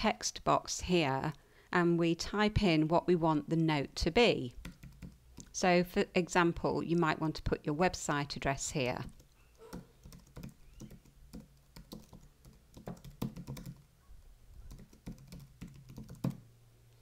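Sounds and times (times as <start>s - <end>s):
computer keyboard typing: 4.6s - 5.5s, 9.0s - 13.9s, 14.7s - 16.4s.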